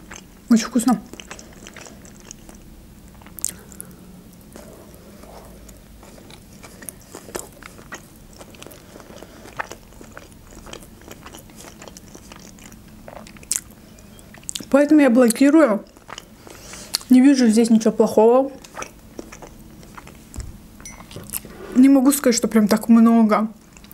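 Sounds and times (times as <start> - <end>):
chewing crunchy food: 0.0 - 17.1, 18.6 - 20.5, 23.6 - 23.9
faint low hum: 0.0 - 23.9
wet mouth clicks: 3.2 - 3.9.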